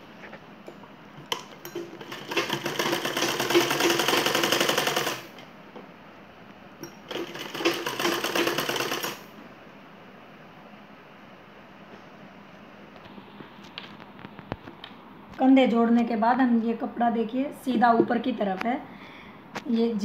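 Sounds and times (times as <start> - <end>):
sewing machine stitching: 1.3 - 5.3, 7.1 - 9.3.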